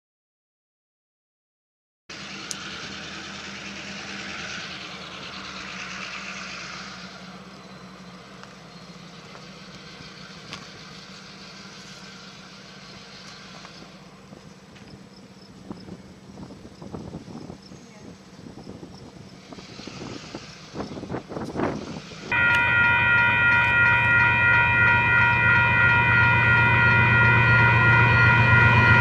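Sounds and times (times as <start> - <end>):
steady engine hum: 2.1 - 29.0
rushing noise: 21.7 - 29.0.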